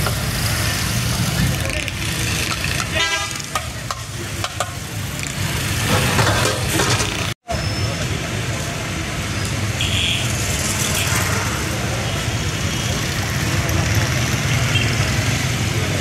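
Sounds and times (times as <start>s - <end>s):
street traffic: 0.0s - 16.0s
vehicle horn toot: 2.9s - 3.4s, 9.8s - 10.3s.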